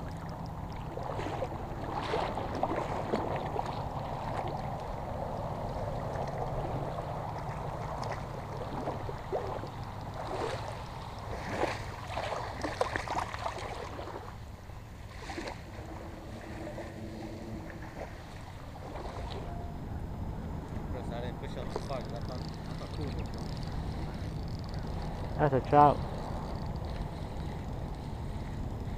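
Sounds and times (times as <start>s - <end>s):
water sloshing and splashing: 0.0s - 19.7s
wind rumble on microphone: 0.0s - 28.9s
sharp splashes and knocks: 0.1s - 4.9s, 7.3s - 14.3s, 15.1s - 15.9s.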